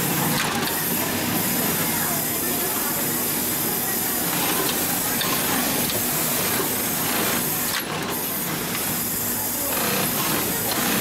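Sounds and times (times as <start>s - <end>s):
sewing machine whirring: 0.0s - 11.0s.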